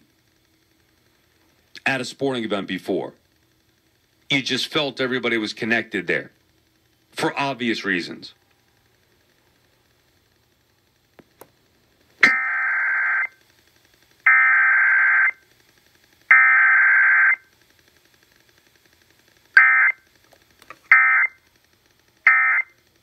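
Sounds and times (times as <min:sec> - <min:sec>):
warbling alert data tones: 0:12.2 - 0:13.4, 0:14.3 - 0:15.4, 0:16.3 - 0:17.4, 0:19.6 - 0:20.0, 0:20.9 - 0:21.4, 0:22.3 - 0:22.7.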